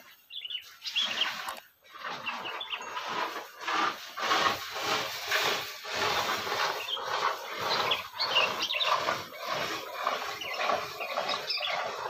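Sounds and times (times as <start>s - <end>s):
bird chirping: 0.0s - 3.1s, 6.7s - 12.0s
rustling noise: 0.8s - 11.5s.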